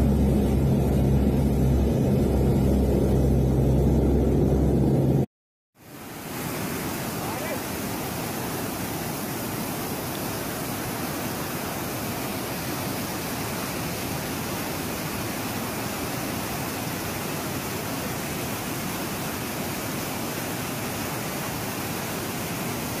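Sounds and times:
river rushing over boulders: 0:05.8 - 0:23.0.

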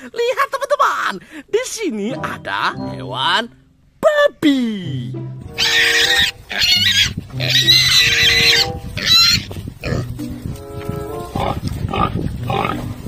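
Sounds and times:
background music: 0:01.9 - 0:13.0
pigs squealing: 0:05.5 - 0:10.1, 0:11.4 - 0:12.9.

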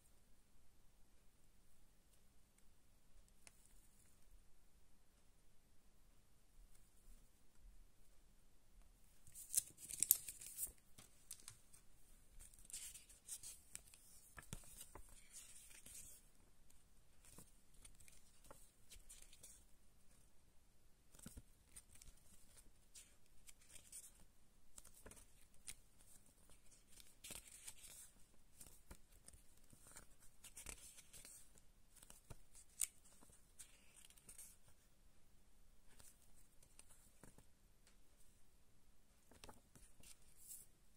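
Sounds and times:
booklet pages turning: 0:09.3 - 0:16.3, 0:17.2 - 0:19.7, 0:21.1 - 0:34.8, 0:35.9 - 0:37.5, 0:39.2 - 0:40.7.

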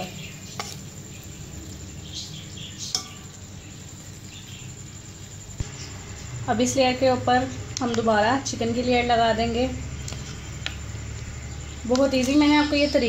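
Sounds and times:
light metallic clink: 0:02.8 - 0:03.4.

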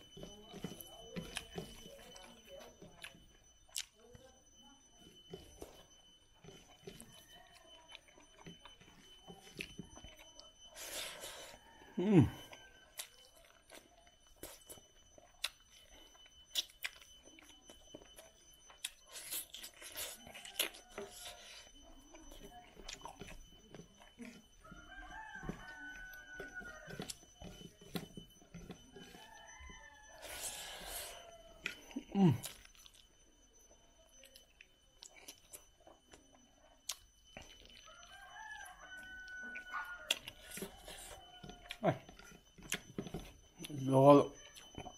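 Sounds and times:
chewing: 0:00.0 - 0:44.9
rooster crowing: 0:11.2 - 0:13.1, 0:24.6 - 0:32.4, 0:37.8 - 0:42.2.

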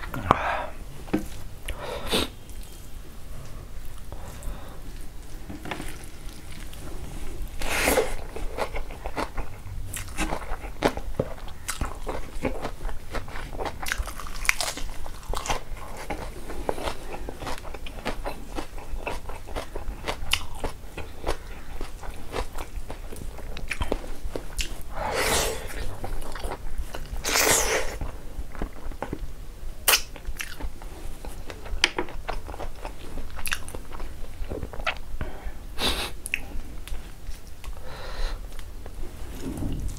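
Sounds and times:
close chewing and biting: 0:05.5 - 0:29.2, 0:29.9 - 0:35.0.

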